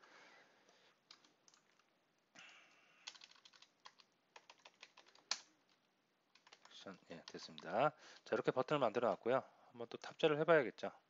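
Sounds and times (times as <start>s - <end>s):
keyboard typing: 1.1s - 8.2s.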